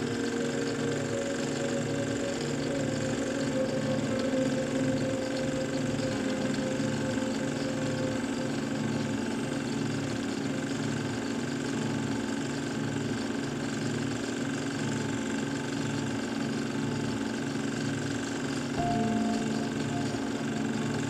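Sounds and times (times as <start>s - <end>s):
low repeating pulse: 0.0s - 11.0s, 18.8s - 21.0s
steady mechanical drone: 0.0s - 21.0s.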